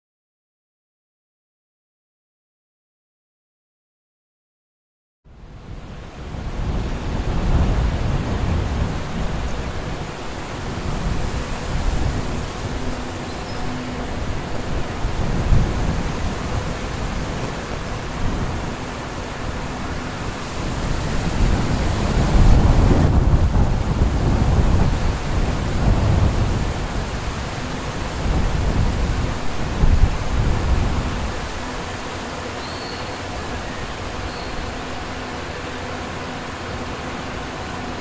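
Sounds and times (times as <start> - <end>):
locomotive deep rumble: 6.1 - 38.0.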